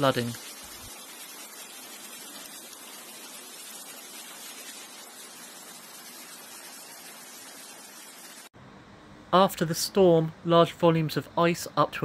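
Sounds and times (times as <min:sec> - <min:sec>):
steady rain hiss: 0:00.0 - 0:08.5.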